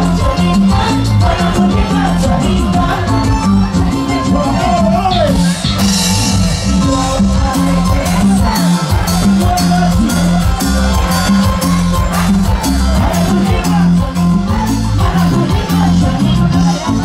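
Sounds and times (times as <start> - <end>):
live band music through speakers: 0.0 - 17.0
man calling into a microphone: 4.4 - 5.8.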